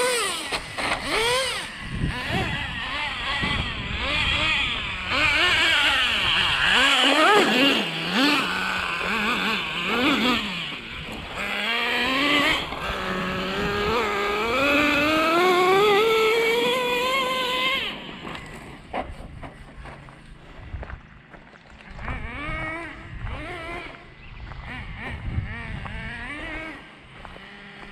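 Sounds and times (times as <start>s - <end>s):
toy truck motor whining: 0.0s - 18.6s.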